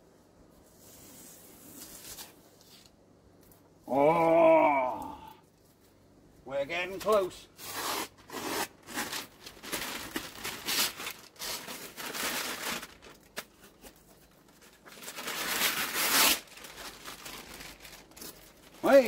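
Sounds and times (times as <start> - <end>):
paper and tape peeling and crinkling: 0.6 - 3.6, 6.9 - 19.0.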